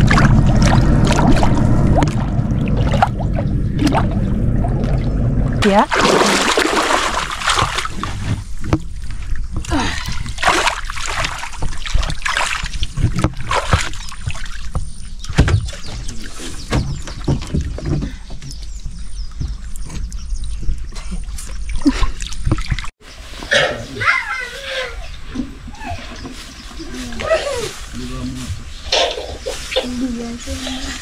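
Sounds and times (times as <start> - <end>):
low rumble: 0.0 - 10.4
water splashing and sloshing: 0.0 - 31.0.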